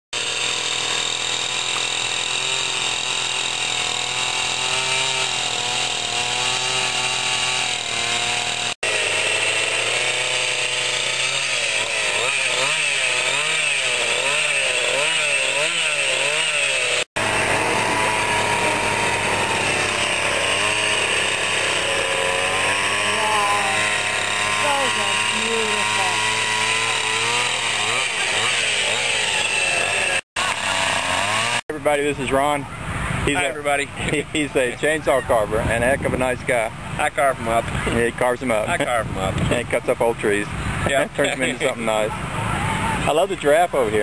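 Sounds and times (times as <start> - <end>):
chainsaw cutting wood: 0.2 - 32.4.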